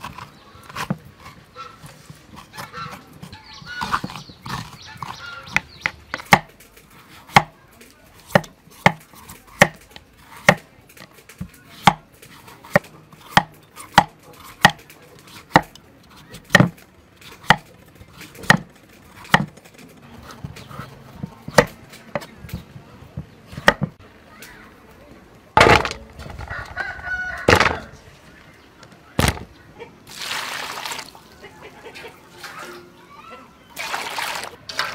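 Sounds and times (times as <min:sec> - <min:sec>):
knife chopping on wooden block: 0:00.0 - 0:06.5, 0:07.3 - 0:07.6, 0:08.2 - 0:09.8, 0:10.4 - 0:10.6, 0:11.4 - 0:12.0, 0:12.6 - 0:15.8, 0:16.4 - 0:16.8, 0:17.4 - 0:19.6, 0:20.4 - 0:22.6, 0:23.2 - 0:24.0.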